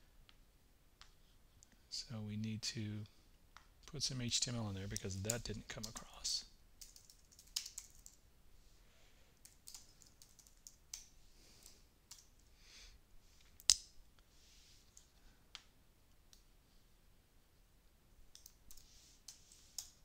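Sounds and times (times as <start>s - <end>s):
typing on computer keyboard: 6.8s - 8.2s, 9.4s - 12.4s, 18.3s - 20.0s.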